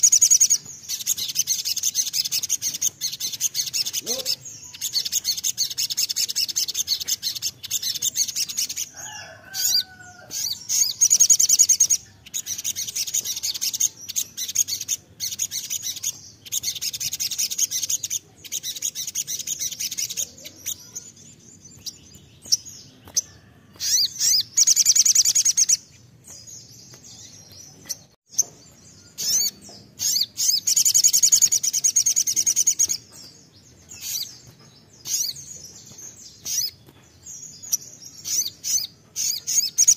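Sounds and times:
sunbird rapid high chirping song: 0.0s - 39.9s.

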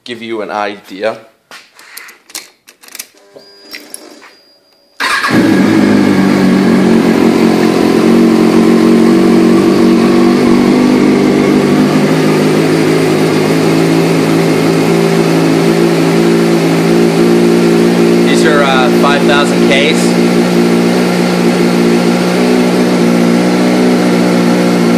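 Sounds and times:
motorcycle engine starting and idling: 5.0s - 24.9s.

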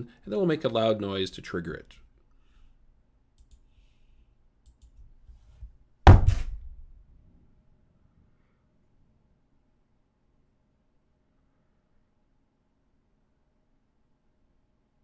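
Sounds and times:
faint clicks: 3.4s - 3.7s, 4.6s - 5.0s
knuckles knocking on a desk: 6.1s - 6.5s.

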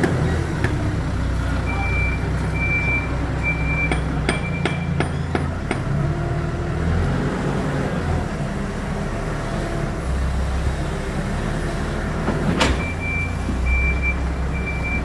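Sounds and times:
diesel engine running: 0.0s - 15.0s
reversing alarm beeping: 1.6s - 5.0s, 12.8s - 15.0s.

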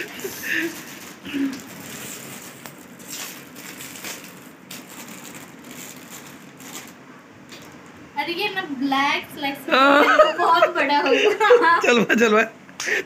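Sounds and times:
plastic packaging crinkling: 0.0s - 7.9s.

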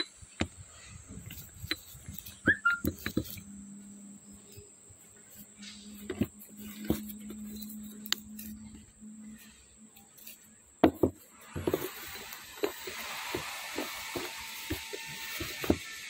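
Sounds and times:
metal parts clunking: 5.3s - 16.0s
metal parts knocking on wood: 10.8s - 16.0s.

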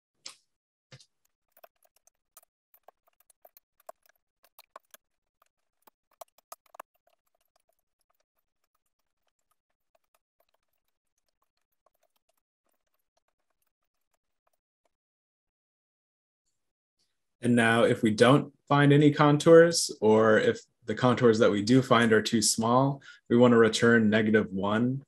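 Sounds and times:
typing on computer keyboard: 1.3s - 14.4s.

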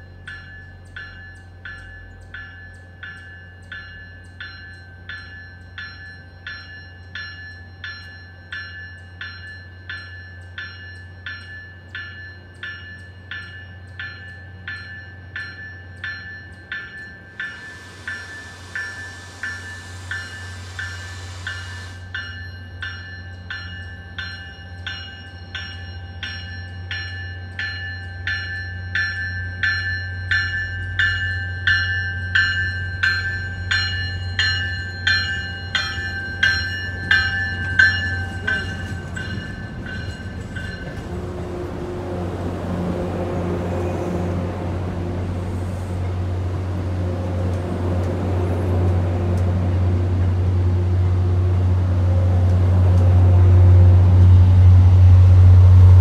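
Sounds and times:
train warning bell ringing: 0.0s - 50.6s
diesel locomotive drone: 0.0s - 56.0s.

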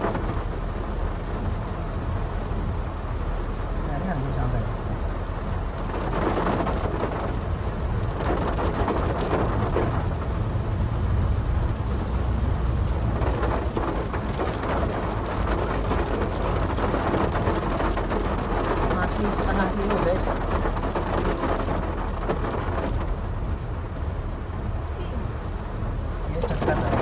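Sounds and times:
car engine and road rumble: 0.0s - 27.0s
rain and wet tyres hissing: 0.0s - 27.0s.

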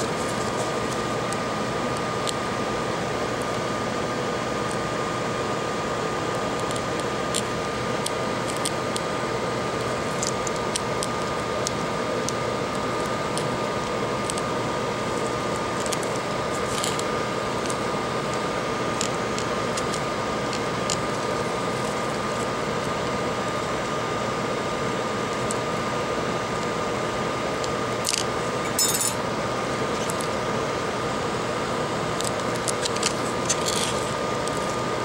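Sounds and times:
fan hum with high whine: 0.0s - 35.0s.

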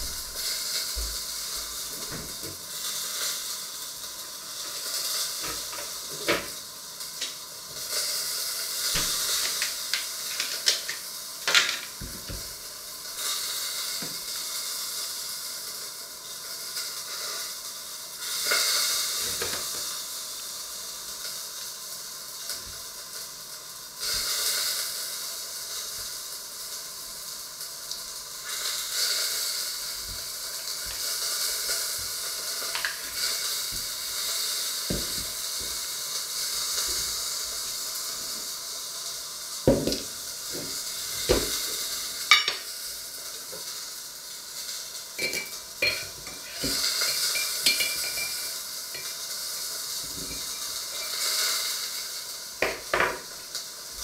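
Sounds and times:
food sizzling on a stove: 0.0s - 54.0s
kitchen utensils clicking and knocking: 45.2s - 48.4s.

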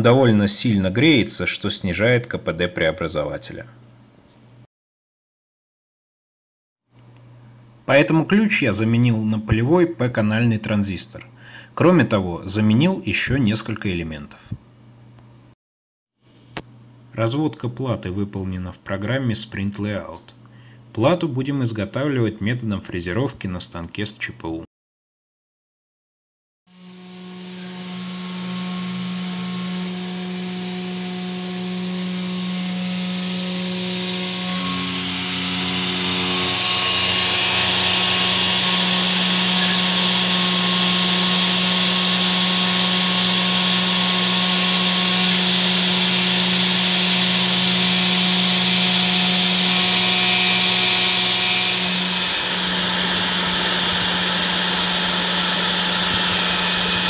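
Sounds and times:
cnc router spindle humming: 26.7s - 57.0s
engraving bit cutting hiss: 31.5s - 57.0s.

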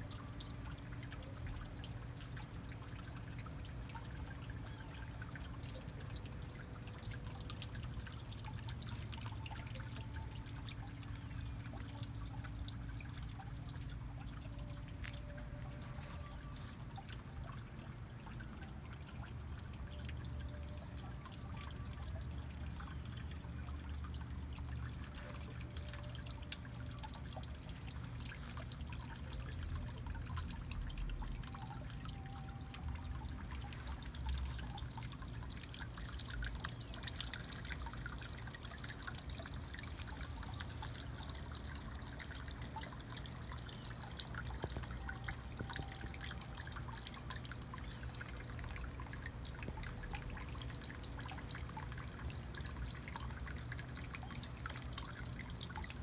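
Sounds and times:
water trickling and dripping: 0.0s - 56.0s.

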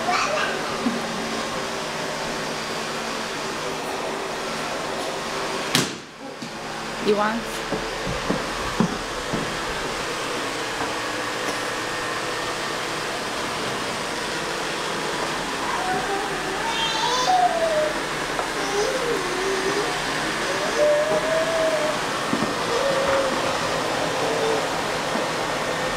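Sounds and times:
vacuum cleaner running: 0.0s - 25.9s
vacuum hose dragging: 17.8s - 25.9s
wavering tone: 22.6s - 24.8s.

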